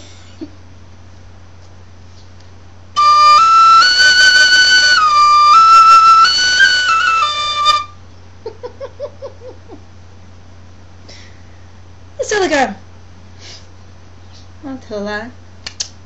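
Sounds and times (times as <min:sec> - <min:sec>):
tin whistle playing slow melody: 0:03.0 - 0:08.0.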